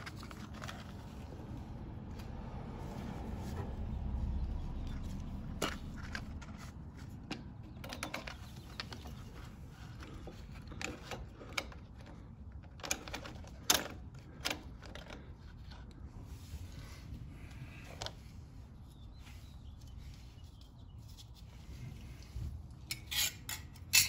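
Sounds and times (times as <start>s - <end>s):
metal and plastic parts clicking: 5.6s - 16.0s.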